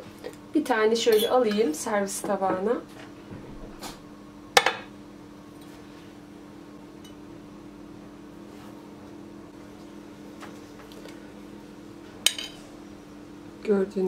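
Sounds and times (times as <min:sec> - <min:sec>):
metal utensil clinking on ceramic plate: 0:01.1 - 0:01.7.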